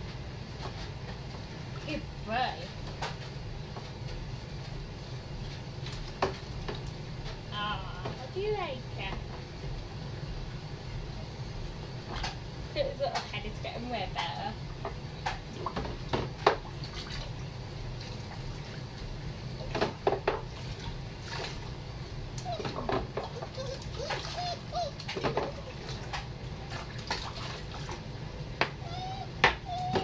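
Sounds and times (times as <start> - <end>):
water splashing in a sink: 15.2 - 19.0, 19.6 - 21.8, 25.0 - 28.1
puppy whimpering: 22.4 - 26.0, 28.8 - 30.0.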